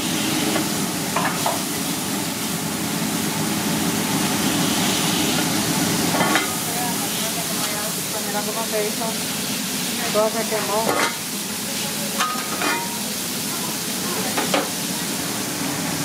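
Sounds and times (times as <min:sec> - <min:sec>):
grease sizzling on a griddle: 0:00.0 - 0:16.0.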